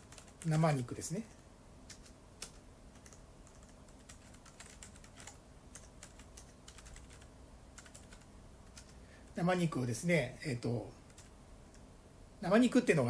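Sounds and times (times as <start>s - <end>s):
keyboard typing clicks: 1.9s - 9.0s.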